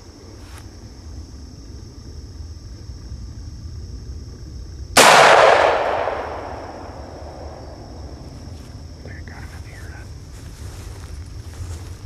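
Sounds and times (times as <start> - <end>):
gunshot: 5.0 - 8.0.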